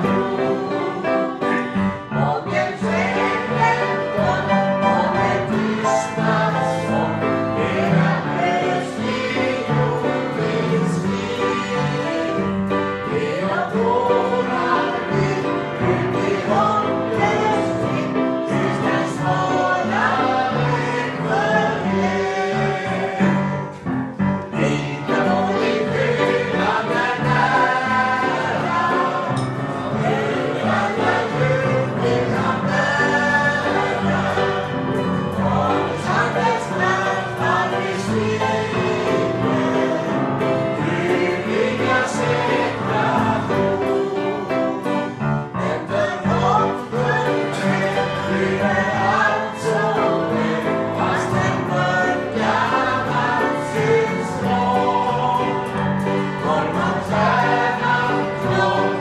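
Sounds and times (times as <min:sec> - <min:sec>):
acoustic guitar: 0:00.0 - 0:59.0
people singing together: 0:00.0 - 0:59.0.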